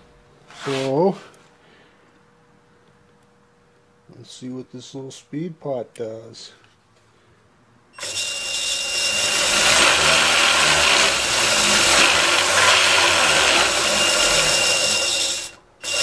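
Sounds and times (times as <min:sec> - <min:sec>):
band saw motor whirring: 0:08.0 - 0:16.0.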